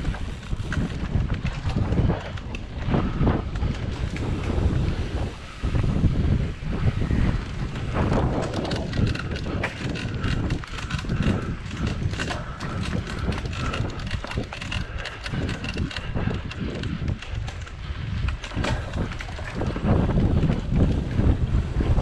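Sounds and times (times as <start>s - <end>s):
bike rattling over bumps: 0.0s - 22.0s
wind buffeting microphone: 0.0s - 22.0s.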